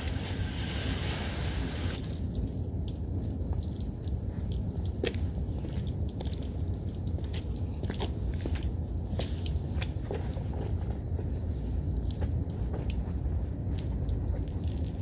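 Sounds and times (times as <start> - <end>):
hose nozzle spray hissing: 0.0 - 2.1
footsteps on wet pavement: 2.2 - 15.0.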